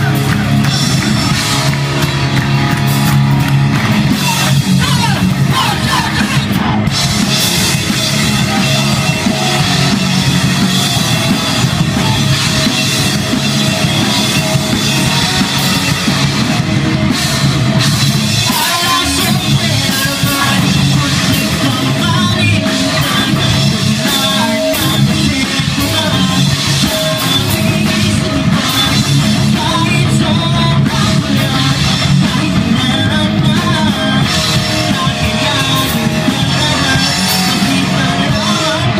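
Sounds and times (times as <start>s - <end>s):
bass guitar: 0.0s - 38.9s
distorted electric guitar: 0.0s - 38.9s
drum kit: 0.0s - 38.9s
person singing into microphone: 18.3s - 38.9s.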